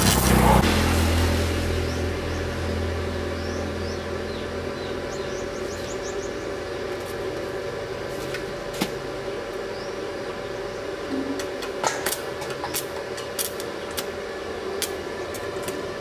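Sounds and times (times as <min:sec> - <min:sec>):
welding machine electric hum: 0:00.0 - 0:16.0
birds chirping: 0:01.8 - 0:07.4, 0:09.6 - 0:11.6.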